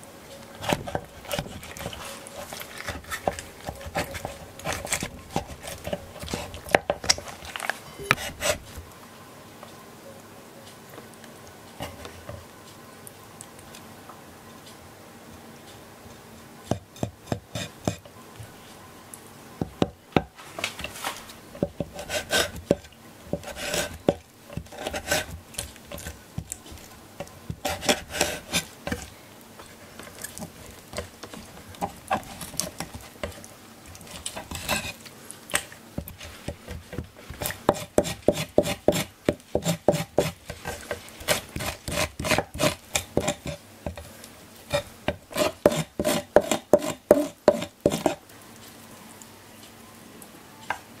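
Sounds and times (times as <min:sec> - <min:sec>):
knife scraping: 0:00.6 - 0:08.8, 0:17.0 - 0:18.0, 0:20.6 - 0:44.1, 0:44.7 - 0:48.2
knife tapping cutting board: 0:36.5 - 0:41.0, 0:45.1 - 0:48.2.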